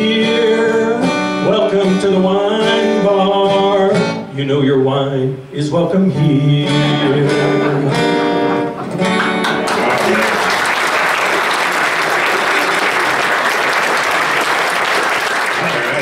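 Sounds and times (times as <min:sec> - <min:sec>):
acoustic guitar chords: 0:00.0 - 0:10.2
audience applause: 0:08.8 - 0:16.0.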